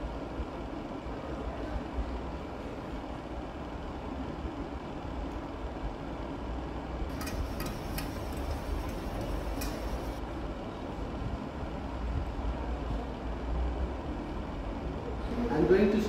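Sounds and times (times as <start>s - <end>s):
tap water running into steel sink: 7.1s - 10.2s.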